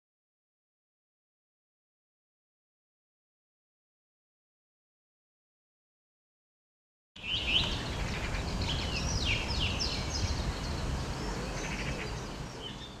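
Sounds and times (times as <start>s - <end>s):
low outdoor hum: 7.2s - 13.0s
small birds chirping: 7.2s - 13.0s.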